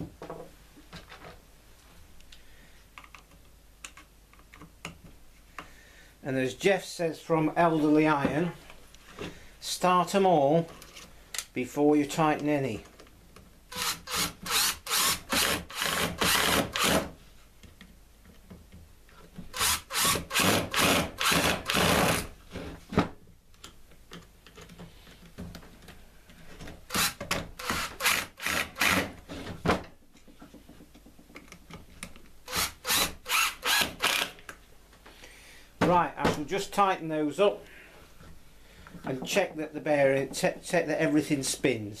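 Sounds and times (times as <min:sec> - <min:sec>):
cordless drill driving screws: 0:13.7 - 0:17.1, 0:19.5 - 0:22.3, 0:26.9 - 0:29.1, 0:32.5 - 0:34.4.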